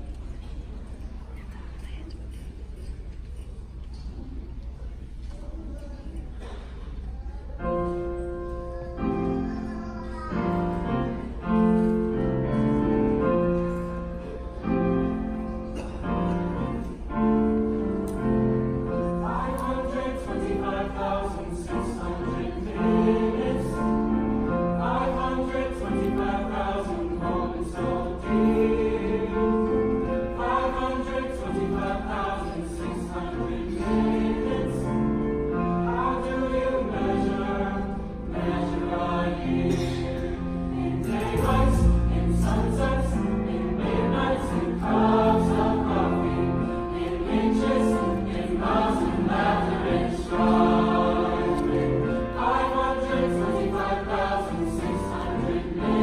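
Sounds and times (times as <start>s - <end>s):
grand piano: 7.5s - 56.0s
choir singing in harmony: 7.6s - 56.0s.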